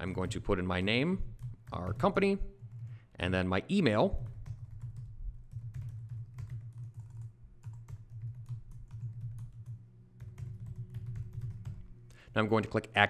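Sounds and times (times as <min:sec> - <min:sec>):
low steady hum: 0:00.0 - 0:13.0
keyboard typing: 0:01.2 - 0:03.0, 0:04.2 - 0:12.2.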